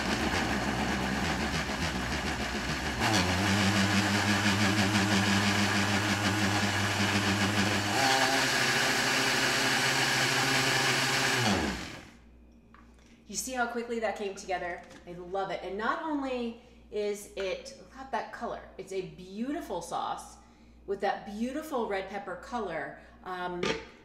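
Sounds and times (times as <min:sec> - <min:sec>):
blender running: 0:00.0 - 0:12.2.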